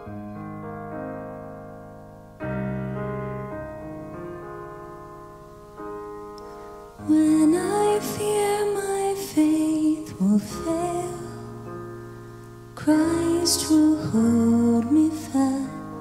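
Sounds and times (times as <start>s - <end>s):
slow piano chords: 0.0s - 16.0s
woman singing: 7.0s - 11.7s, 12.8s - 16.0s.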